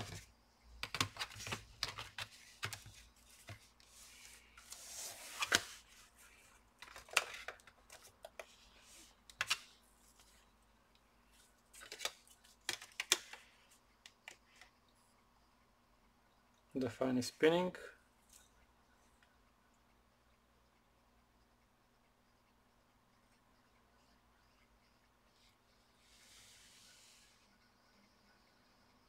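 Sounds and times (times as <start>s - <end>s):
laptop plastic clicks and knocks: 0.8s - 2.9s.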